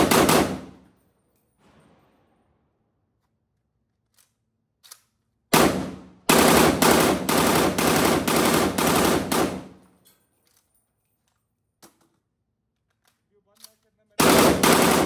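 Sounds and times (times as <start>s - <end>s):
rifle shots ringing out: 0.0s - 0.9s, 5.5s - 9.9s, 14.2s - 15.0s.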